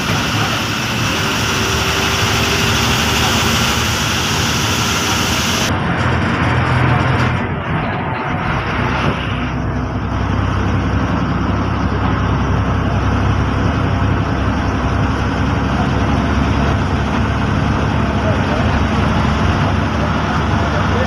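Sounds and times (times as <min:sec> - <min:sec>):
bus diesel engine running: 0:00.0 - 0:21.0
road noise: 0:00.0 - 0:21.0.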